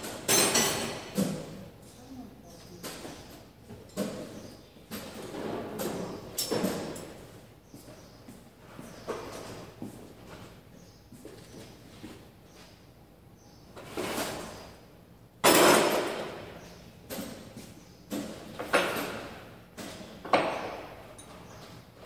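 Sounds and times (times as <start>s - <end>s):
loud knocks and clatters: 15.4s - 21.1s.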